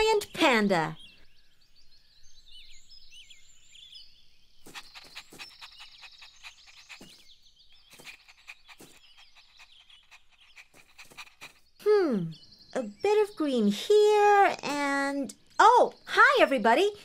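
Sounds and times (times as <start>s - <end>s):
birds chirping: 0.0s - 17.0s
cartoon puppy panting: 4.7s - 11.8s.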